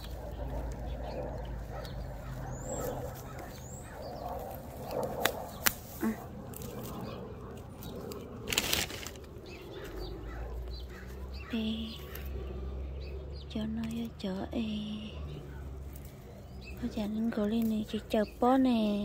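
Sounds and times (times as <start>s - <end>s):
hand rustling leaves: 0.0s - 12.5s, 15.6s - 19.0s.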